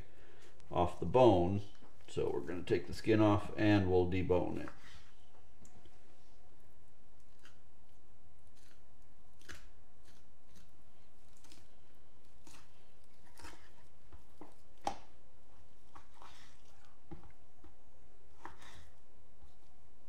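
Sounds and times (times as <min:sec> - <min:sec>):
knife slicing meat: 0:09.4 - 0:14.0.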